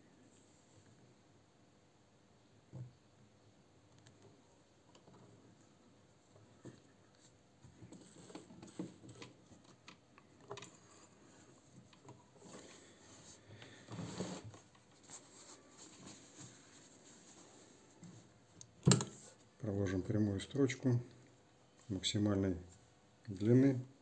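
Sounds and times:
cloth rustling: 12.3 - 18.4.

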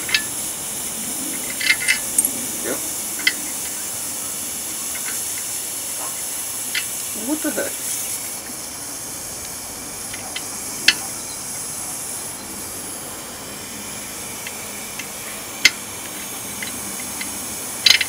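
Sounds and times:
sharp metal clicks of washers: 0.0 - 0.5, 1.3 - 2.5, 3.1 - 4.0, 6.7 - 7.1, 14.4 - 18.0
steady hiss: 0.0 - 18.0.

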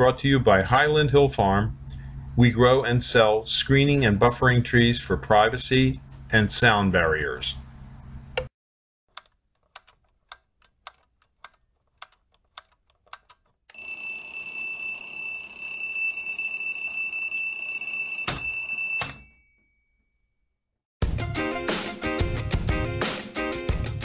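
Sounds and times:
sharp clicks: 9.1 - 13.6
high-pitched alarm bell ringing: 13.7 - 19.9.

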